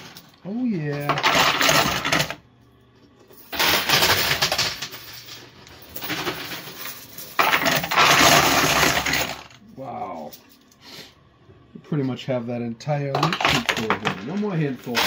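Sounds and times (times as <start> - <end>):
coins and chips clattering: 0.0 - 2.4, 3.3 - 9.6, 13.2 - 15.0.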